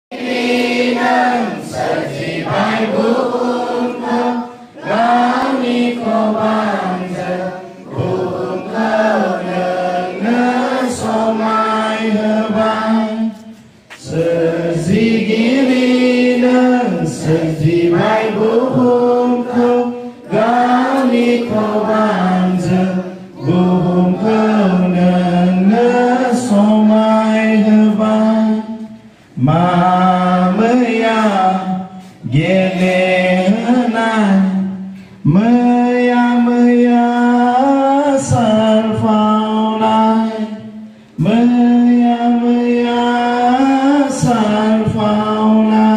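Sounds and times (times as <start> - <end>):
children singing in unison: 0.1 - 28.9.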